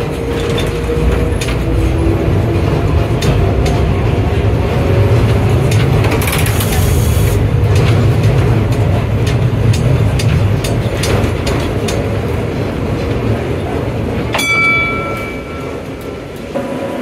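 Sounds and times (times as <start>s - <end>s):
tram wheels and motor rumbling: 0.0s - 17.0s
tram bell ringing: 13.8s - 17.0s.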